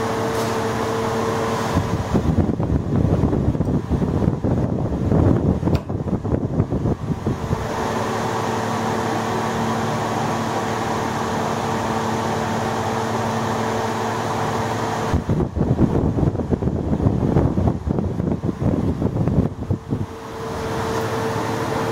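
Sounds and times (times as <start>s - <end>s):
mechanical hum with low drone: 0.0s - 21.9s
wind buffeting microphone: 1.7s - 8.0s, 15.1s - 20.9s.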